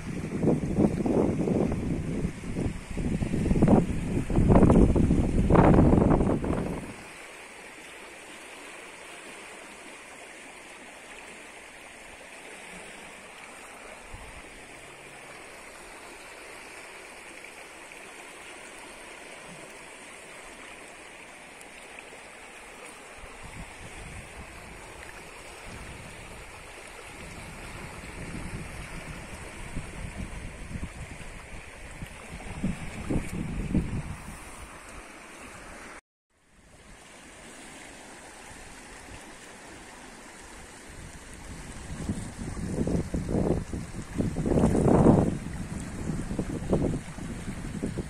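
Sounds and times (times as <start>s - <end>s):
wind buffeting microphone: 0.0s - 7.0s, 23.3s - 34.9s, 40.8s - 48.0s
stream water over stones: 0.0s - 48.0s.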